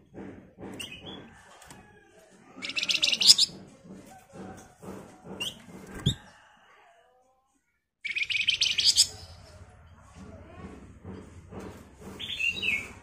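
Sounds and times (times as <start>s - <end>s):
bird chattering: 2.6s - 3.6s, 8.0s - 9.4s.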